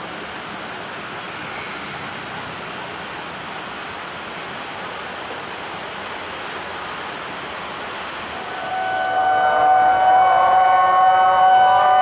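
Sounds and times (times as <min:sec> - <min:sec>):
rushing outdoor noise: 0:00.0 - 0:12.0
level-crossing warning alarm: 0:08.5 - 0:12.0.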